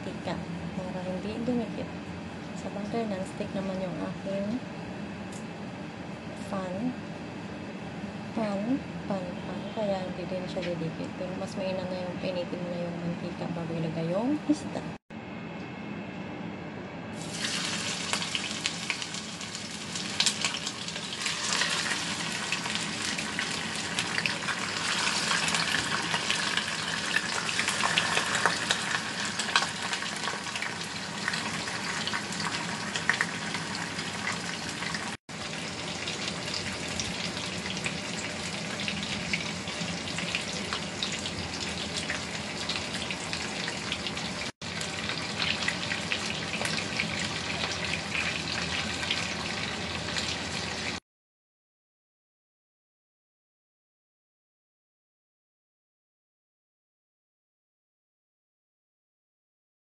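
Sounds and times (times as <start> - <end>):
fish frying in hot oil: 17.2 - 51.0.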